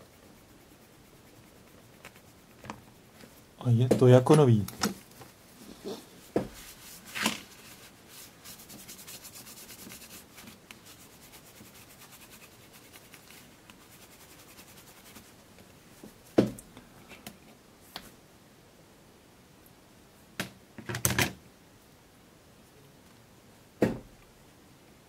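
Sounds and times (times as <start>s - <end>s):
thump: 23.8s - 24.1s.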